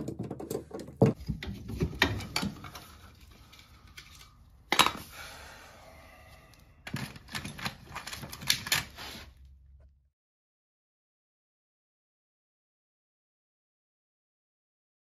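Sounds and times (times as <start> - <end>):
hand tools clicking and clattering: 6.8 - 9.0.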